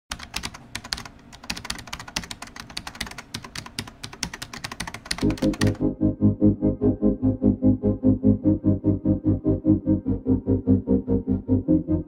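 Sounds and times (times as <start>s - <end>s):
keyboard typing clicks: 0.1s - 5.8s
synthesizer music with pulsing beat: 5.2s - 12.0s.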